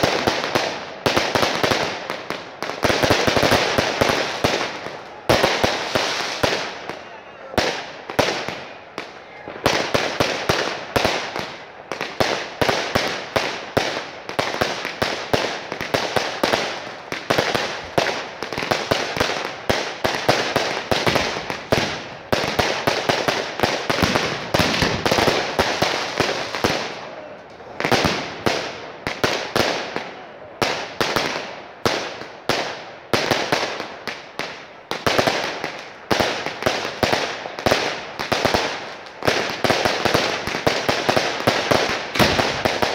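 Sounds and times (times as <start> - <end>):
fireworks bangs and crackling: 0.0 - 42.9.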